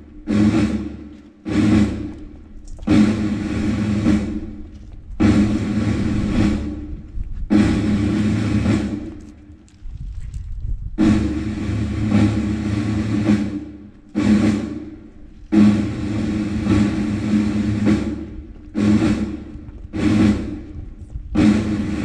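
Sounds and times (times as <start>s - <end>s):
horn long blasts: 11.0s - 22.0s.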